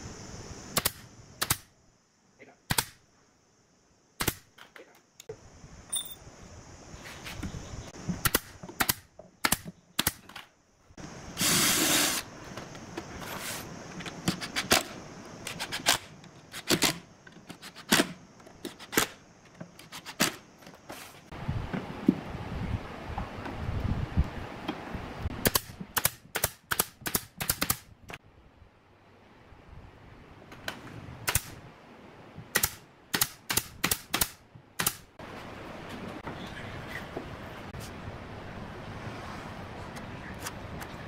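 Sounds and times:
brief hiss: 0:11.4 - 0:12.3.

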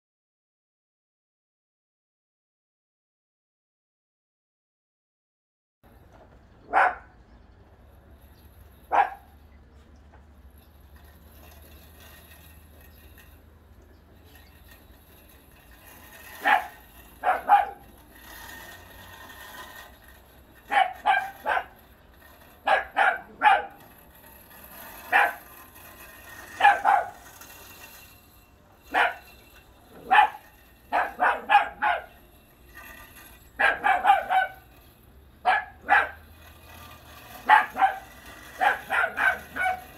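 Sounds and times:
dog barking: 0:06.7 - 0:07.1, 0:08.9 - 0:09.2, 0:16.4 - 0:17.8, 0:20.7 - 0:21.7, 0:22.7 - 0:23.8, 0:26.6 - 0:27.2, 0:28.9 - 0:29.2, 0:30.1 - 0:32.1, 0:33.6 - 0:34.6, 0:35.5 - 0:36.2, 0:37.4 - 0:39.9.

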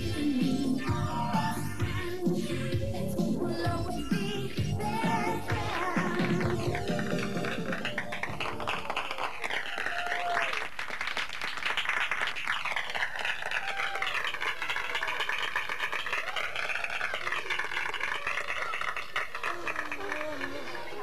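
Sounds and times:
crowd clapping: 0:05.4 - 0:21.0.

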